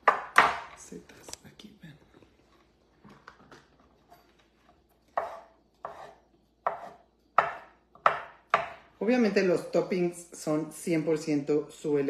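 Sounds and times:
knife slicing on wooden board: 0:05.2 - 0:07.5.

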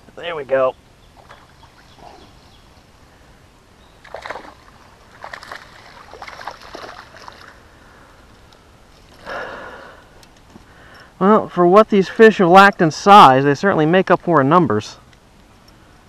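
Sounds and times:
fish splashing in shallow water: 0:04.0 - 0:07.7.

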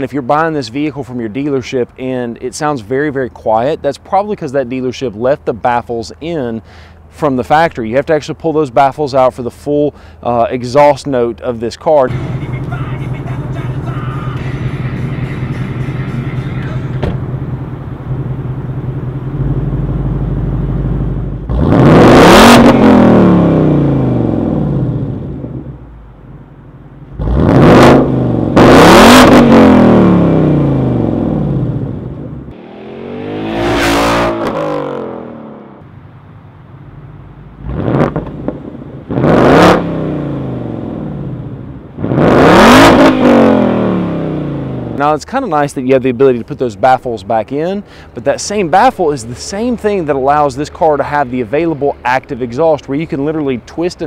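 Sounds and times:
car engine idling and revving: 0:12.1 - 0:45.0.

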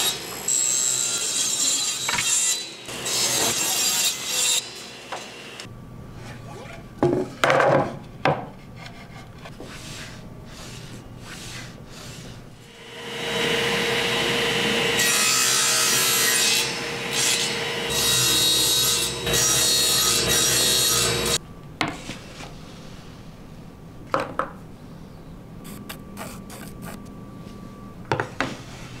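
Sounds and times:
table saw cutting plywood: 0:00.0 - 0:05.7, 0:09.6 - 0:21.4
table saw humming: 0:09.6 - 0:21.4.

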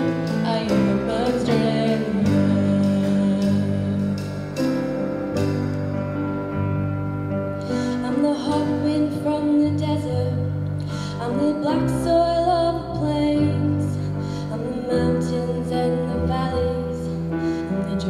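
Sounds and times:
instrumental held chords: 0:00.0 - 0:18.0
girl singing into a microphone: 0:08.0 - 0:17.2.

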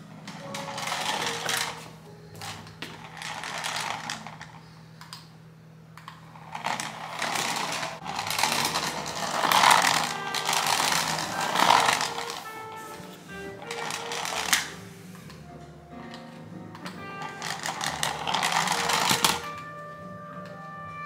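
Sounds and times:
plastic toy rattling on floor: 0:00.3 - 0:04.6, 0:06.3 - 0:14.8, 0:16.8 - 0:19.7
toy motor whirring: 0:00.4 - 0:01.9, 0:03.0 - 0:04.6, 0:06.3 - 0:14.8, 0:17.0 - 0:19.6.

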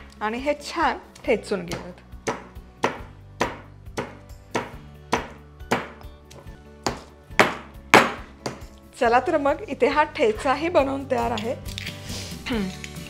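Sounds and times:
stone pestle pounding in mortar: 0:01.7 - 0:06.1, 0:06.8 - 0:08.7.

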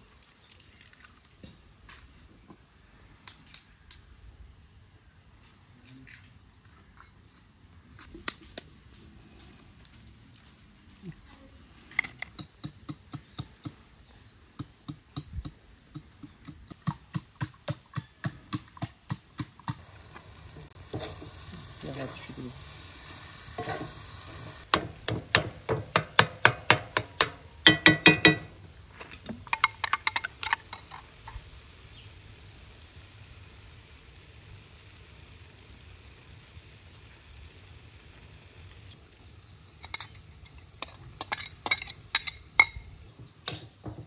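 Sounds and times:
light sizzle: 0:00.0 - 0:06.7, 0:07.4 - 0:25.2, 0:27.6 - 0:44.0
spoon stirring in frying pan: 0:19.7 - 0:22.6, 0:23.2 - 0:24.8, 0:29.5 - 0:31.6
clinking and scraping: 0:23.6 - 0:24.7, 0:27.7 - 0:31.5, 0:39.7 - 0:42.9.

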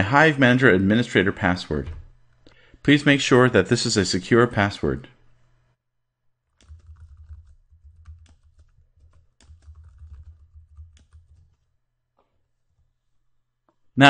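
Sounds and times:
typing on computer keyboard: 0:06.5 - 0:11.7.

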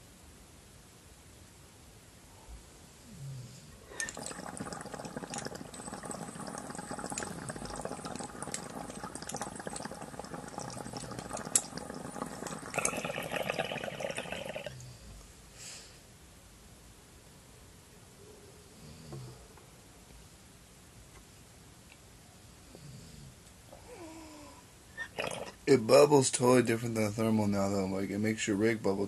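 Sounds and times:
water bubbling in glass pipe: 0:03.9 - 0:14.8, 0:25.0 - 0:25.7.

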